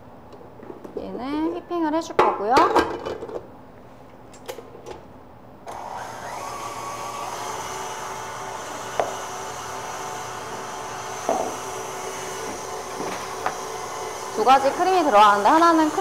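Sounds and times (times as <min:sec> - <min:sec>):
electric mixer running: 0:05.7 - 0:16.0.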